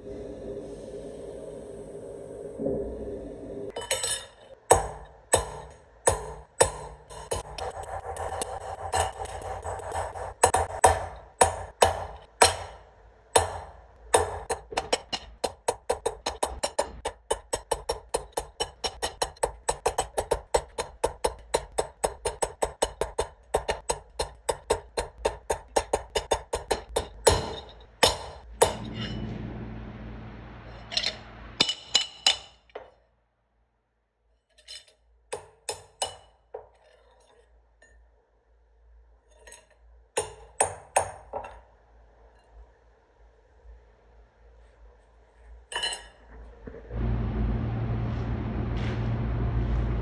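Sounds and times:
hammer striking steel punch: 0:04.7 - 0:12.8, 0:13.4 - 0:29.3.

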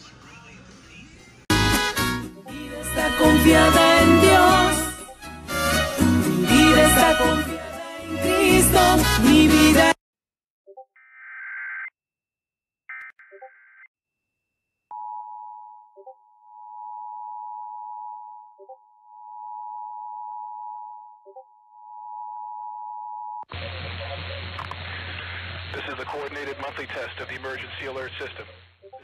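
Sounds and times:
radio voice announcement: 0:23.5 - 0:28.7.

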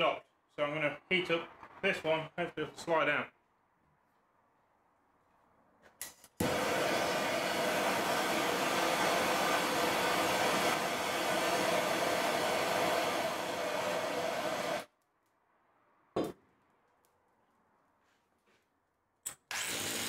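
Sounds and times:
blowtorch hissing: 0:06.4 - 0:14.9.

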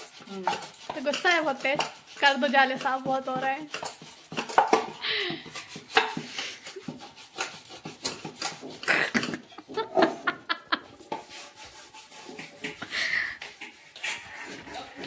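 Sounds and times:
dishes and utensils clattering: 0:00.0 - 0:15.0
woman laughing: 0:05.0 - 0:05.5, 0:08.8 - 0:11.0.

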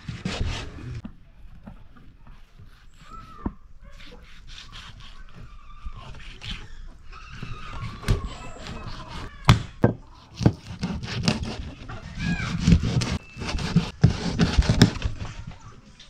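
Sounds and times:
knife scraping fish: 0:02.4 - 0:09.3, 0:10.1 - 0:15.2.

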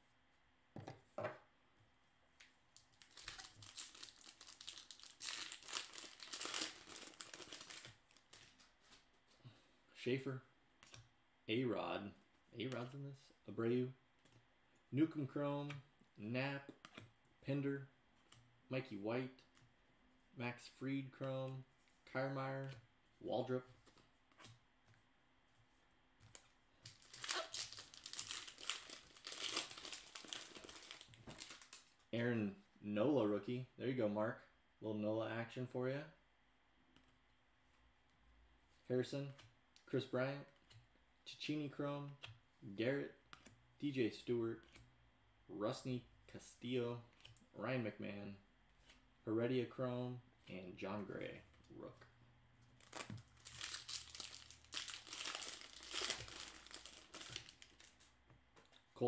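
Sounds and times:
foil wrapper crinkling and tearing: 0:02.9 - 0:08.5, 0:26.9 - 0:31.9, 0:52.8 - 0:58.1.

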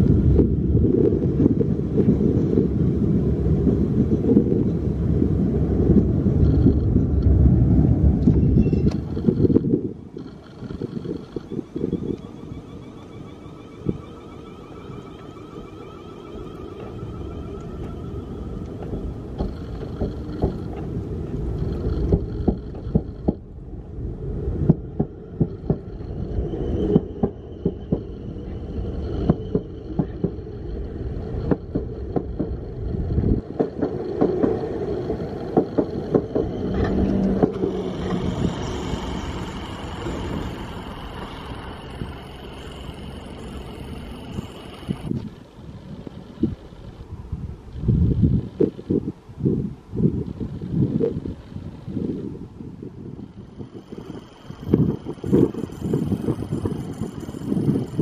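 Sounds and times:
electric traction whine: 0:00.0 - 0:58.0
train running rumble: 0:00.0 - 0:58.0
wheels clicking over rail joints: 0:05.7 - 0:23.6, 0:24.6 - 0:49.2.

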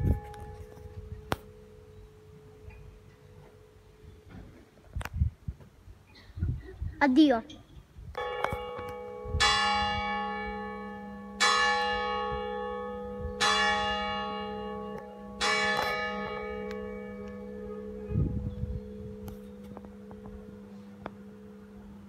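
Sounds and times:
church bell tolling: 0:08.2 - 0:22.0.

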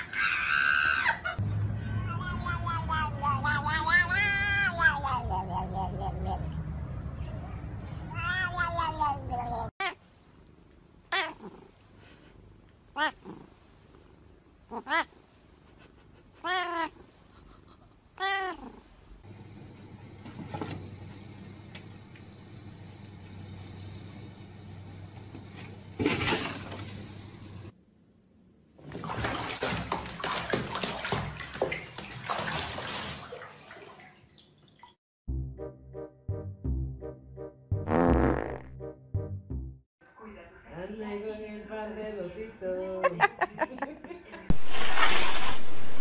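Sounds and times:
cat meowing: 0:02.0 - 0:05.9, 0:08.1 - 0:10.0, 0:11.1 - 0:11.6, 0:13.0 - 0:13.4, 0:14.7 - 0:15.1, 0:16.4 - 0:17.0, 0:18.2 - 0:18.8.

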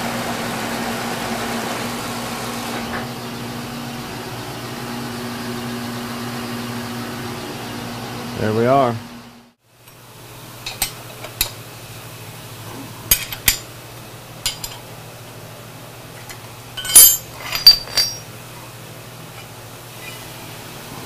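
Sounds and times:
steel clamps clanking on metal: 0:13.1 - 0:13.7, 0:14.4 - 0:14.8, 0:16.2 - 0:18.3.

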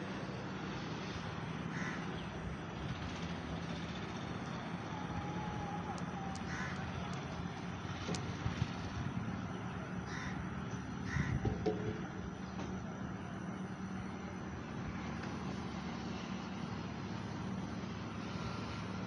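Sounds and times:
road traffic hum: 0:00.0 - 0:19.0
crows cawing: 0:01.6 - 0:02.2, 0:06.2 - 0:07.1, 0:10.0 - 0:11.6.

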